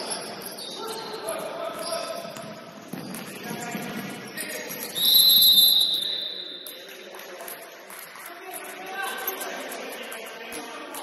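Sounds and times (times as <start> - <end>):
referee's whistle blast: 4.9 - 6.5.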